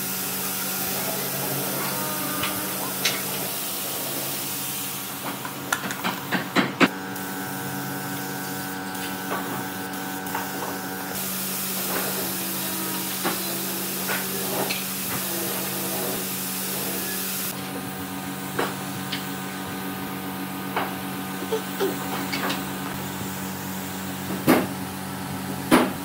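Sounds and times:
air spray gun hissing: 0:00.0 - 0:05.3, 0:06.9 - 0:17.6, 0:21.2 - 0:24.5.

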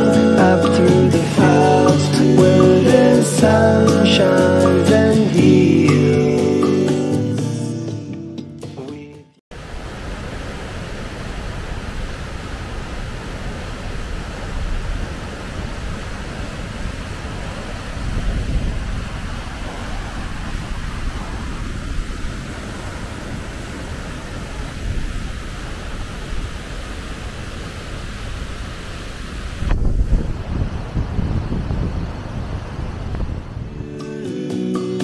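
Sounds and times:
water rushing over rocks: 0:09.5 - 0:33.6
wind buffeting microphone: 0:09.7 - 0:33.9.

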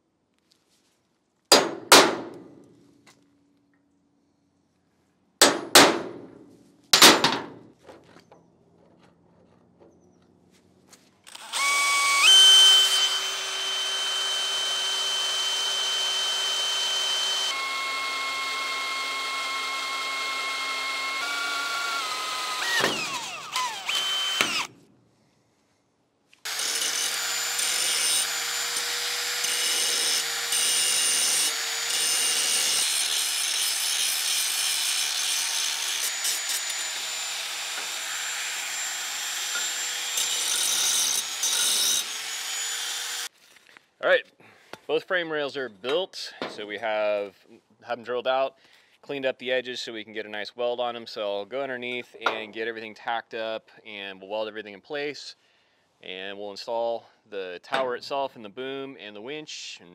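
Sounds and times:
drill boring through steel: 0:11.3 - 0:24.7, 0:26.5 - 0:43.3
angle grinder grinding steel: 0:26.4 - 0:43.3.

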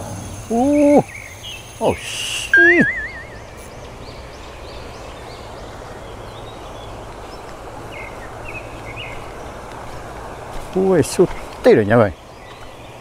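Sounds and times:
bird chirps: 0:00.5 - 0:05.6
bird singing short repeated notes: 0:02.5 - 0:03.8.

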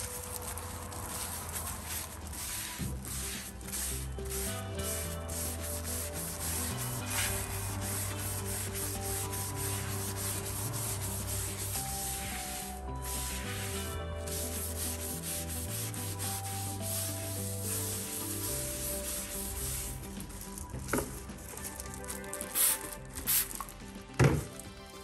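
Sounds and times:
scouring pad scrubbing a wall: 0:00.0 - 0:23.6.

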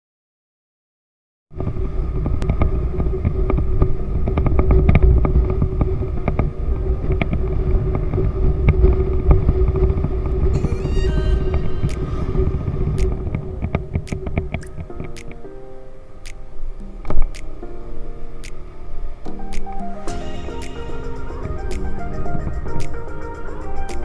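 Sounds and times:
wind rumbling on microphone: 0:01.5 - 0:15.6, 0:16.5 - 0:24.0
brief high-pitched tone: 0:10.6 - 0:12.5.

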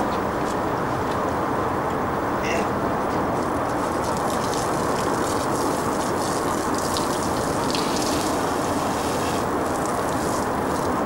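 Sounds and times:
hose water splashing on grass: 0:03.3 - 0:11.0.

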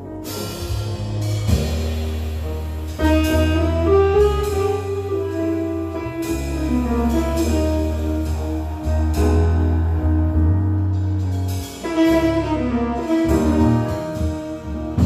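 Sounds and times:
low bass notes: 0:00.0 - 0:15.0
piano: 0:00.0 - 0:15.0
drums with cymbal washes: 0:00.1 - 0:10.2, 0:10.8 - 0:15.0
tenor saxophone melody: 0:03.0 - 0:09.0, 0:11.8 - 0:15.0.

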